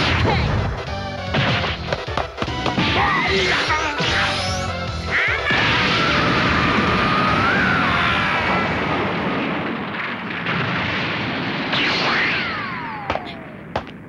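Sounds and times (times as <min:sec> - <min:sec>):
explosion rumble: 0:05.5 - 0:14.0.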